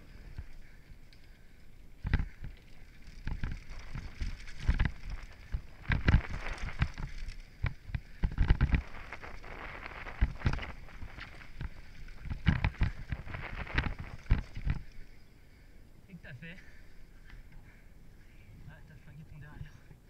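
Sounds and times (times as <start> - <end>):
bike knocks and rattles: 2.0 - 14.9
tyres rushing over loose dirt: 2.0 - 15.1
wind noise on microphone: 2.0 - 15.1.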